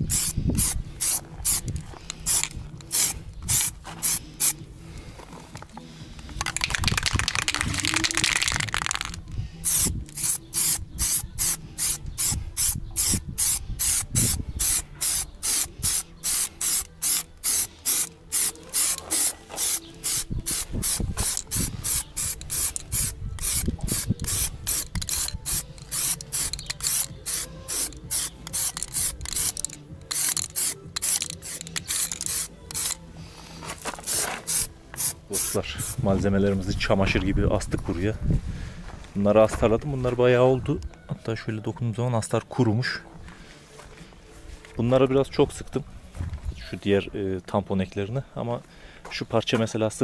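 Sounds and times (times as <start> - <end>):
aerosol can spraying: 0.0 - 4.6, 6.4 - 33.0, 33.8 - 36.0.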